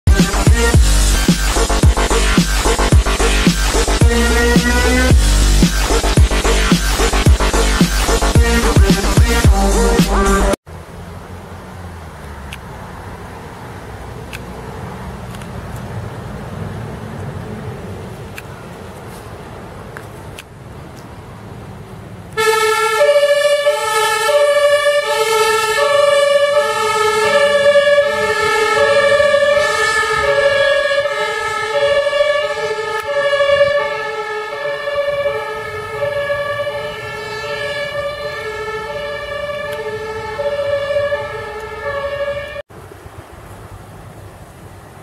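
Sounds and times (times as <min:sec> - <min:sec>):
low traffic rumble: 0:00.0 - 0:45.0
two-tone siren: 0:00.1 - 0:10.6, 0:22.4 - 0:42.6.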